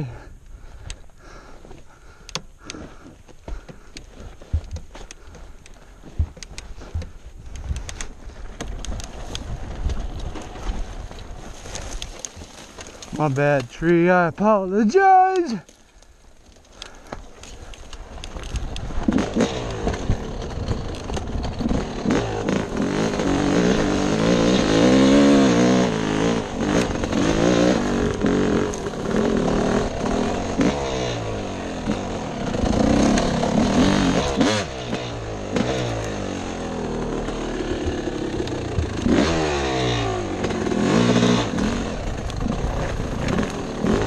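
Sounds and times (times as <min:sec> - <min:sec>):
dirt bike engine revving: 0:18.0 - 0:44.0.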